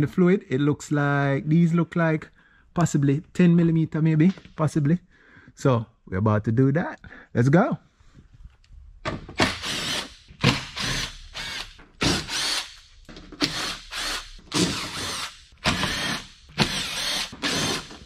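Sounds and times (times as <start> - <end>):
cordless drill bursts: 9.4 - 12.8, 13.4 - 18.0.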